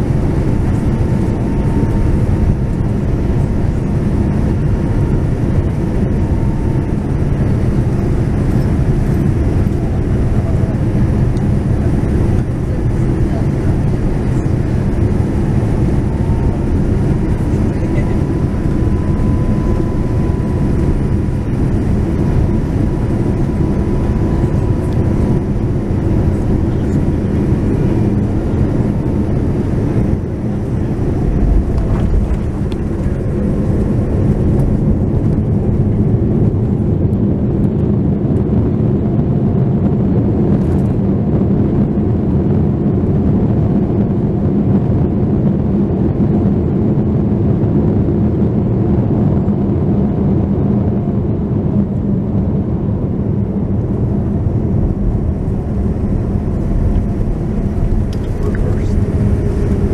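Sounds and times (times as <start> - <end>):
faint whine: 0.0 - 38.7, 51.7 - 59.9
jet engines and airflow rumbling: 0.0 - 59.9.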